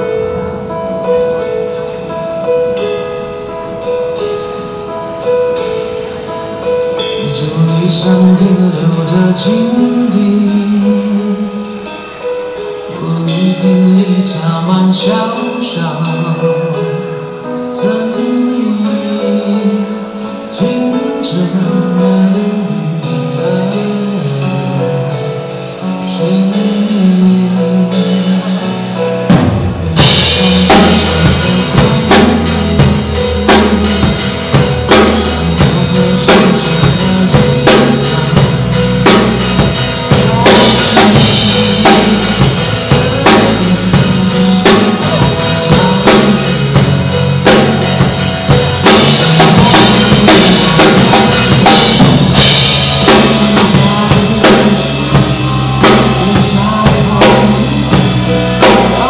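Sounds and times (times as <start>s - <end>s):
drum kit playing a beat: 0.0s - 18.2s, 18.8s - 59.0s
pop backing track: 0.0s - 59.0s
cymbal crash: 29.3s - 56.2s.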